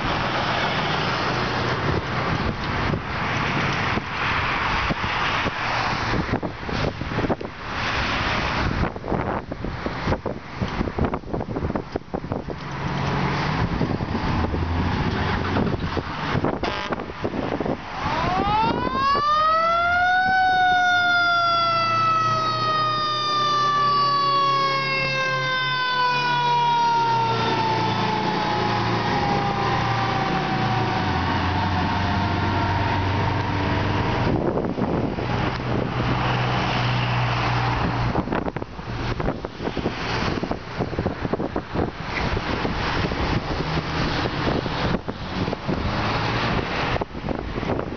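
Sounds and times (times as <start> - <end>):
diesel engine rumble: 0.0 - 47.9
car passing: 12.4 - 47.9
fire truck siren: 17.8 - 34.4.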